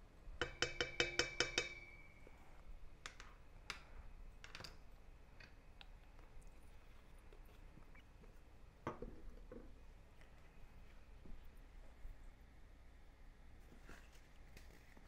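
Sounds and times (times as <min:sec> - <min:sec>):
spoon tapping metal bowl: 0:00.4 - 0:02.3.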